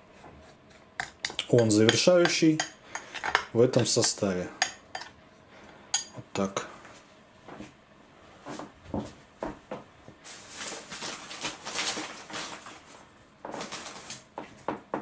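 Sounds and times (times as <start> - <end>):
rustling of packet: 10.2 - 14.3.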